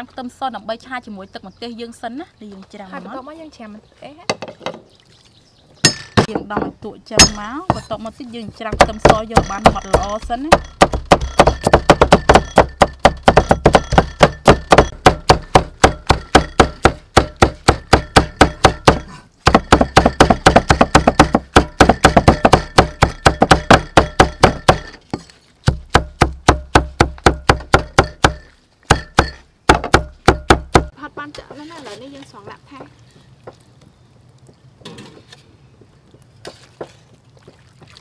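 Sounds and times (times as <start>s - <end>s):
cleaver chopping on wooden block: 5.8s - 7.9s, 8.7s - 30.9s.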